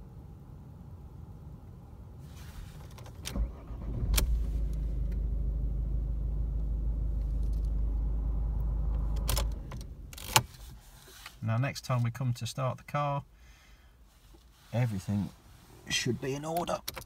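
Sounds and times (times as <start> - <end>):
car engine cranking and starting: 2.8 - 10.9
car engine idling: 3.3 - 10.5.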